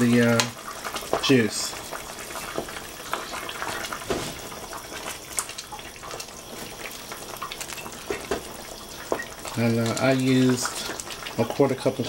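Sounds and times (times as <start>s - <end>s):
juices bubbling: 0.0s - 12.0s
wooden spoon stirring pot: 6.0s - 12.0s.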